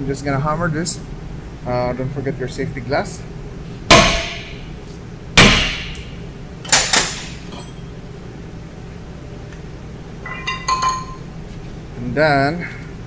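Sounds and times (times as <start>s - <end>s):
metallic clatter with ringing: 10.2s - 11.3s.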